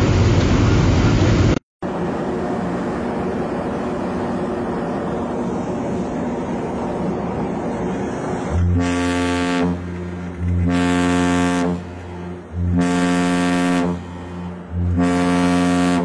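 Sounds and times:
ship's horn blasts: 8.0s - 16.0s.

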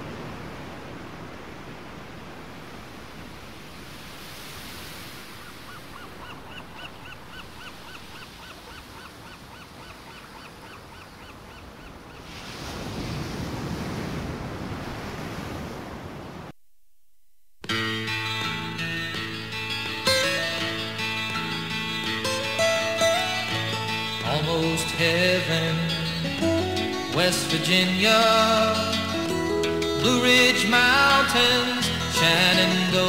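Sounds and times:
rushing sea water: 0.0s - 16.5s
wind: 0.0s - 16.6s, 17.6s - 33.0s.

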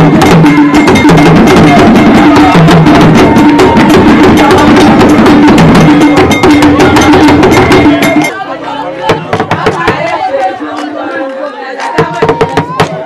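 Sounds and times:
percussion ensemble drumming: 0.0s - 10.9s, 11.8s - 13.0s.

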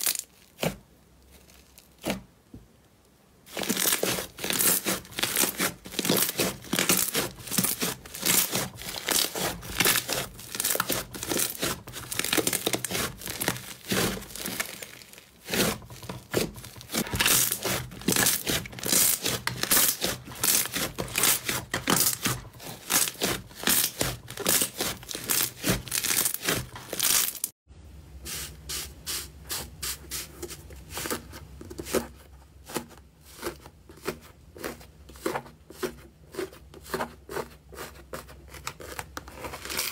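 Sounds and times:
slime crackling and squishing: 0.0s - 2.3s, 3.4s - 27.5s, 38.5s - 39.9s
low steady hum: 27.7s - 31.8s.

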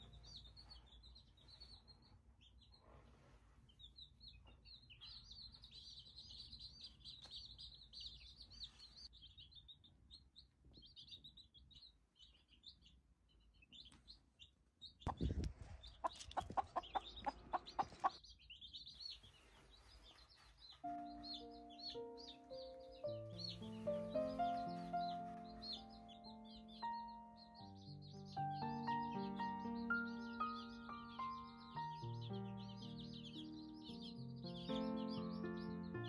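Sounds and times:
baby chicks peeping: 0.0s - 36.0s
chicken clucking: 15.1s - 18.2s.

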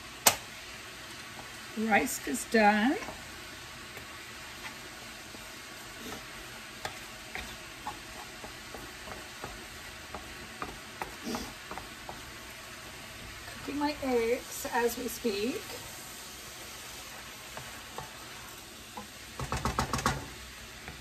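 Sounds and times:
food sizzling in a wok: 0.0s - 21.0s
spatula scraping and tapping pan: 3.9s - 12.4s, 17.4s - 21.0s.

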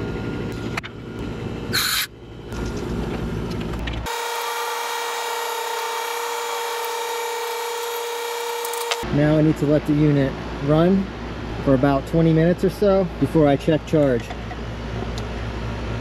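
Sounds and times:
condensing unit high-pitched whine: 0.0s - 16.0s
refrigerant hissing: 1.8s - 2.1s.

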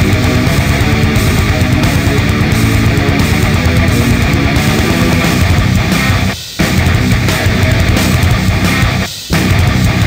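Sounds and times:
loud heavy rock music: 0.0s - 10.0s.

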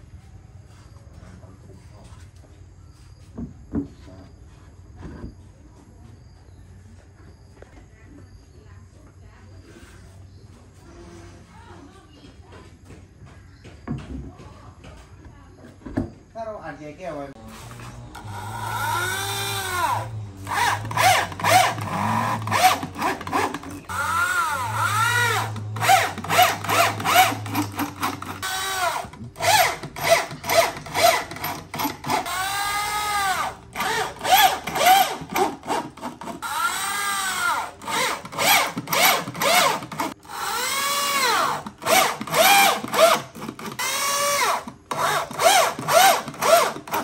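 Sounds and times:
electric drill driving screws: 17.4s - 47.0s.

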